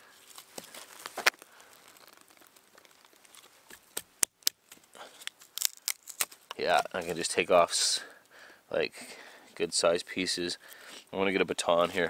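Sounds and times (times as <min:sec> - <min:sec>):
wood cracking and snapping: 0:00.0 - 0:07.2.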